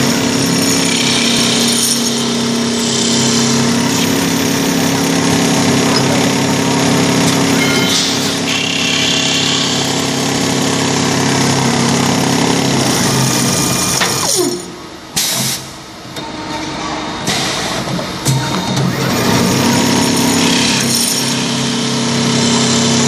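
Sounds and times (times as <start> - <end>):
sharp machine clack: 0.0 - 11.6
wood lathe running: 0.0 - 14.5, 18.9 - 23.0.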